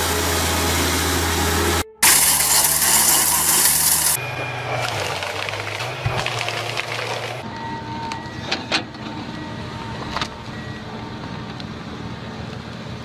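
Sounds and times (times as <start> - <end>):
thin high whine: 0.0 - 5.3
heavy machinery engine running: 0.0 - 13.0.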